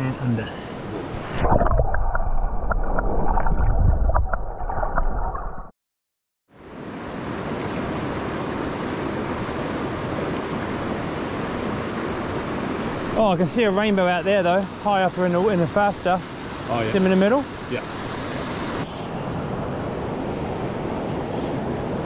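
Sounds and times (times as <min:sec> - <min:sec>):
river rushing: 0:06.6 - 0:22.0.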